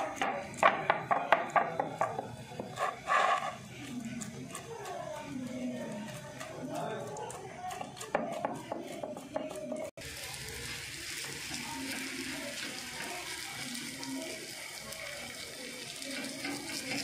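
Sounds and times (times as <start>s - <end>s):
flatbread sizzling on hot pan: 9.9s - 17.0s.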